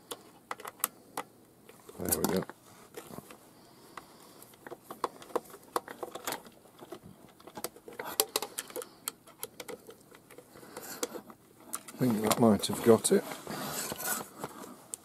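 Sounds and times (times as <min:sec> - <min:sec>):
screwdriver clicking on plastic: 0:07.3 - 0:11.9.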